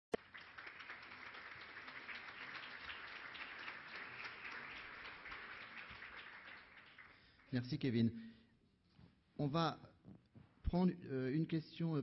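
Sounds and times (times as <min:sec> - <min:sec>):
audience applauding: 0:00.1 - 0:07.9.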